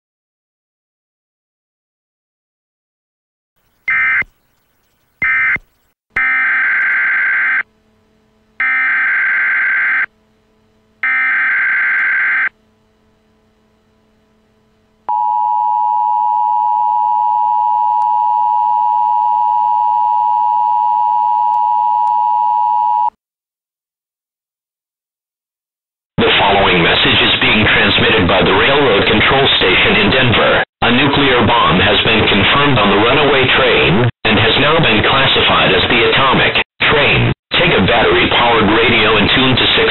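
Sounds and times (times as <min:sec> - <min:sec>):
short electronic bursts: 0:03.8 - 0:04.4, 0:05.2 - 0:07.7, 0:08.6 - 0:10.1
two-tone alert signal: 0:03.9 - 0:04.3, 0:05.2 - 0:05.6.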